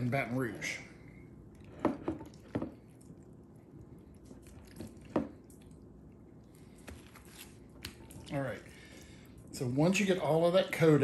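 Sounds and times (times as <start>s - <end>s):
liquid dripping: 1.4s - 10.5s
hands squishing wet meat: 2.3s - 10.1s.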